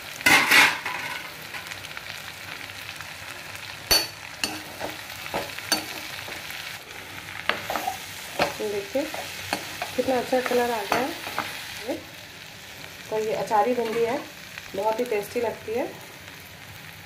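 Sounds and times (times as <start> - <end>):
okra sizzling in oil: 0.0 - 17.0
spatula scraping a pan: 7.4 - 11.6.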